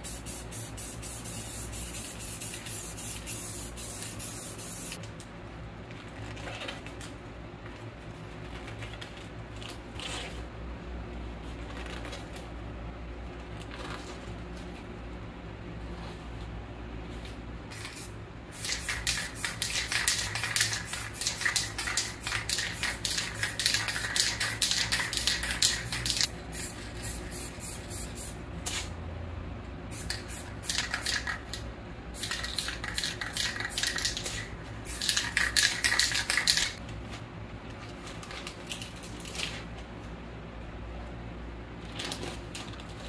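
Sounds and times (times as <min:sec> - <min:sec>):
spray paint can spraying: 0:00.0 - 0:05.0, 0:17.7 - 0:28.9, 0:29.9 - 0:31.6, 0:32.2 - 0:36.8.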